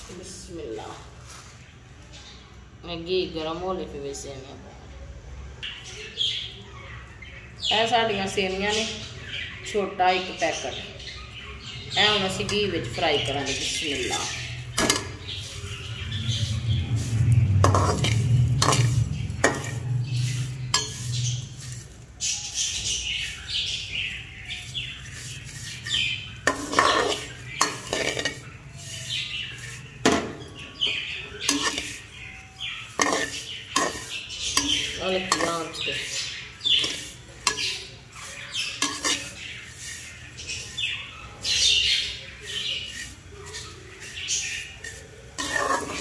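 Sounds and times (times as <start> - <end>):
noodles frying: 12.0 - 46.0
spoon scraping and clinking in pan: 12.1 - 23.4, 24.1 - 41.0, 42.1 - 46.0.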